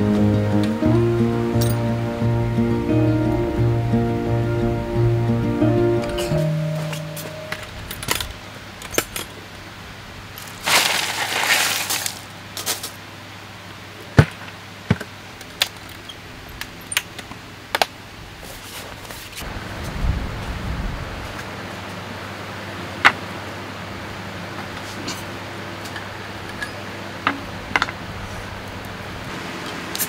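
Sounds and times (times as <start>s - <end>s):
ice rustling: 10.4s - 13.0s.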